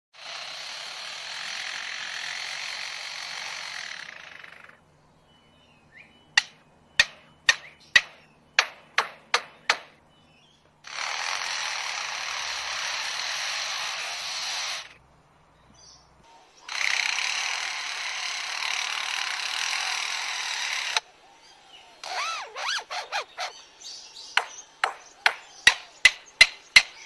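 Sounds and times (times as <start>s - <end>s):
lyrebird sharp knocks: 6.4s - 10.0s, 24.3s - 27.0s.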